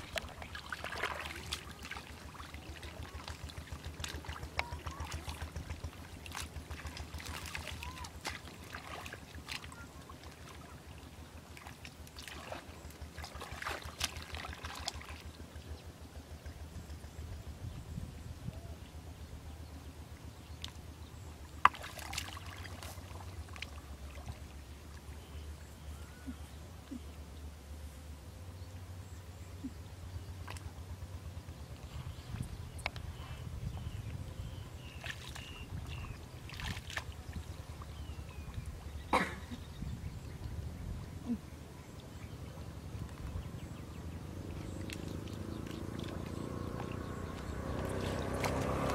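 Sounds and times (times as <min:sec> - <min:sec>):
hands splashing in muddy water: 0:00.0 - 0:10.8, 0:11.4 - 0:15.3, 0:21.6 - 0:24.4, 0:34.8 - 0:38.1, 0:44.5 - 0:48.9
low steady rumble: 0:00.0 - 0:48.9.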